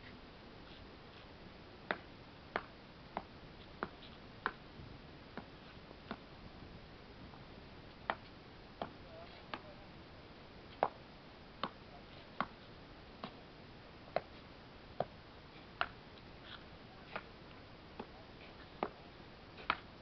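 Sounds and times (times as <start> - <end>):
faint background hiss: 0.0 - 20.0.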